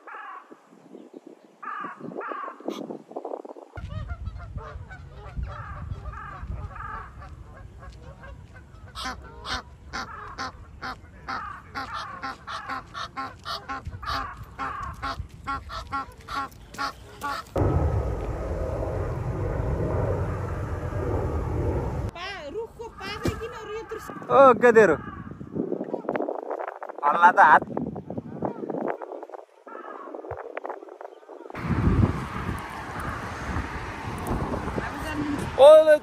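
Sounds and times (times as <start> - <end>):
goose honking: 8.1 - 17.6
steady rushing noise: 17.5 - 22.2.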